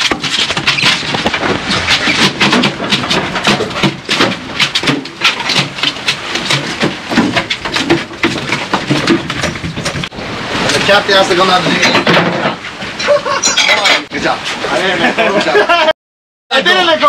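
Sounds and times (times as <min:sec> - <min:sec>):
fish slapping on deck: 0:00.0 - 0:10.8.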